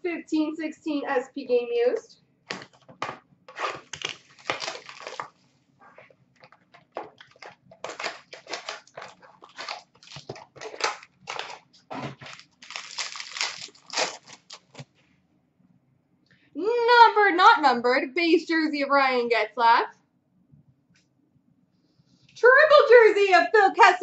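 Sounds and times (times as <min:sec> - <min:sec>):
cardboard tearing: 0:03.5 - 0:05.4, 0:06.4 - 0:14.9
foil wrapper ripping and crinkling: 0:03.5 - 0:05.4, 0:06.4 - 0:14.9.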